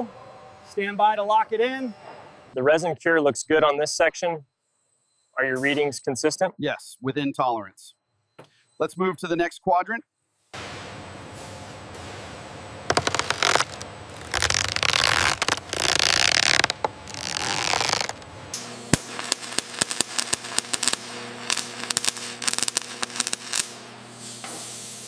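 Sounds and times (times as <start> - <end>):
welding sparks crackling: 12.9 - 25.0.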